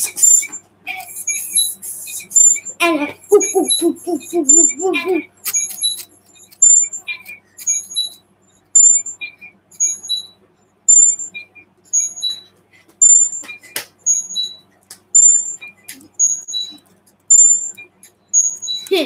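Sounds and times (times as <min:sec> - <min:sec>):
high-pitched beeps: 0:03.3 - 0:08.2, 0:08.8 - 0:14.6, 0:15.2 - 0:19.0.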